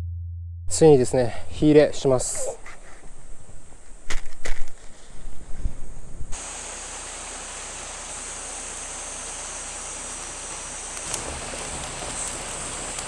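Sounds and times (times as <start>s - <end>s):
steady outdoor hiss: 0.8s - 13.0s
twigs crackling in fire: 10.9s - 13.0s.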